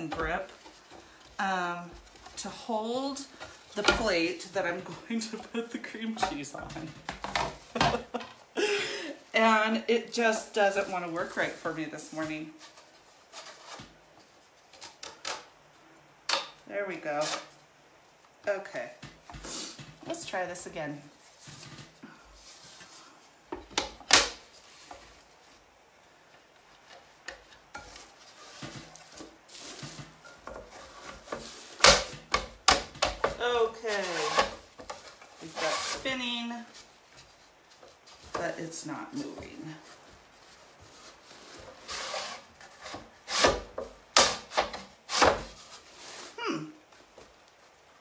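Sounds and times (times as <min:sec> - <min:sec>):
clamps scraping on wooden plate: 0:34.0 - 0:34.6.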